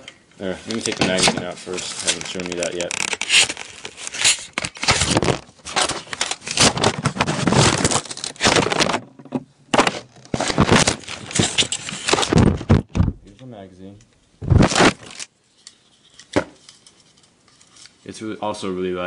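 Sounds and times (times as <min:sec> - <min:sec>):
plastic scraping and rubbing: 0:00.6 - 0:13.3, 0:14.4 - 0:15.3
hands jostling camera: 0:00.7 - 0:08.9.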